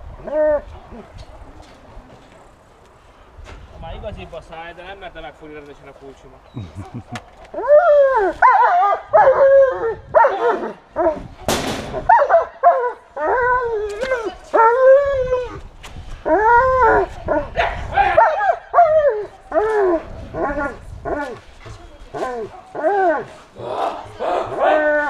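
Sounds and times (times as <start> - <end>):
dog barking high-pitched: 12.1 - 13.0.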